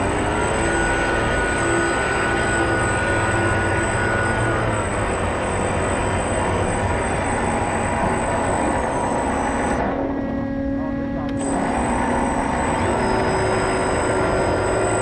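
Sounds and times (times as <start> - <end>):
model boat motor whine: 0.0 - 15.0.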